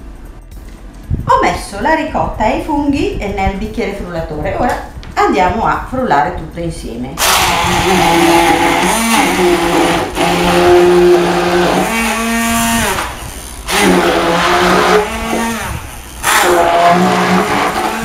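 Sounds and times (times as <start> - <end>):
immersion blender motor whine: 7.2 - 18.0.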